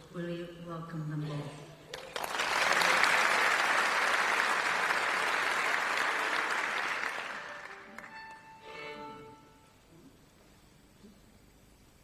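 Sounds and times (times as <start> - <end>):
audience applauding: 1.9 - 8.4.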